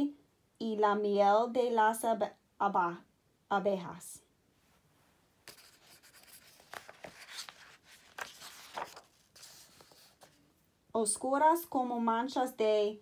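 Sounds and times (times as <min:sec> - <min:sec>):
paper page rustling: 0:05.4 - 0:10.4.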